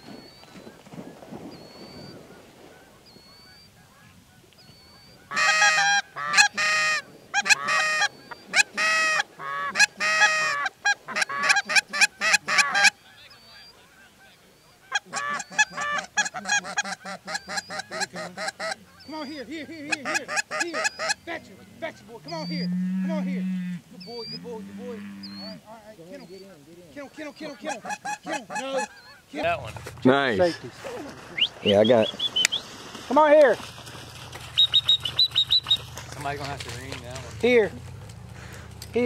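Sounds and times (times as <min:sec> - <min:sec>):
goose honking: 0:02.6 - 0:32.6.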